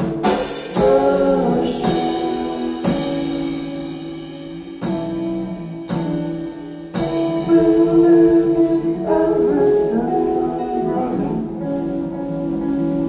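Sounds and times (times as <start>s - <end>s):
person singing: 0.0s - 4.1s, 6.9s - 12.6s
drum and cymbal hits: 0.0s - 8.4s
drum kit: 0.0s - 13.0s.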